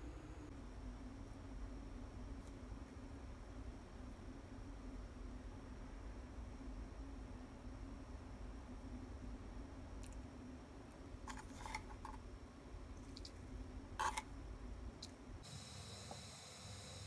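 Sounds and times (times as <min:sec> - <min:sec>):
low steady hum: 0:00.0 - 0:17.0
plastic spoon scooping: 0:11.3 - 0:12.2, 0:14.0 - 0:14.3.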